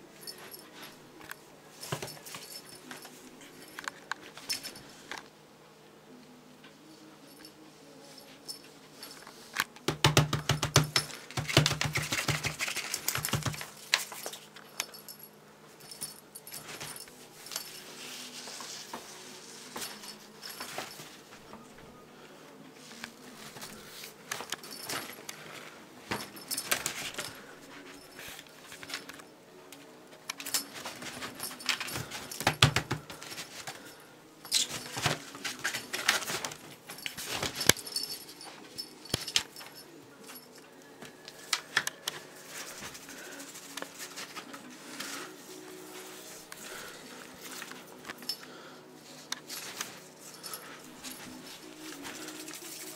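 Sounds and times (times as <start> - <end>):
light metallic clinks: 12.8 - 18.0, 26.1 - 42.8.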